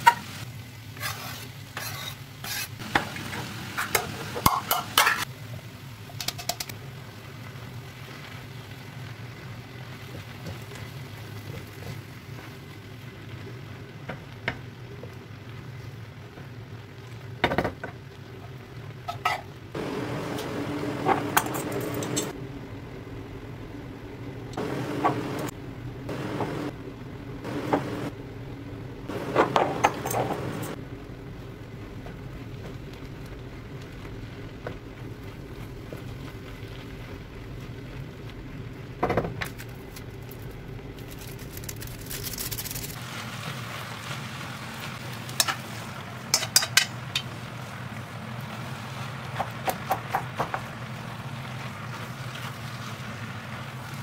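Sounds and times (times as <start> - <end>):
spatula scraping frying pan: 1.0 - 2.8
steady low hum: 19.8 - 36.1.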